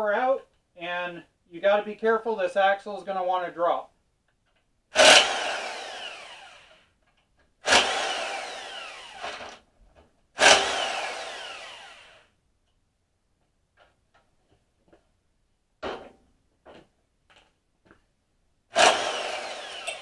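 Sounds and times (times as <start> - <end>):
electric impact wrench whine: 5.0 - 7.0, 7.6 - 9.7, 10.4 - 12.4, 18.7 - 20.0.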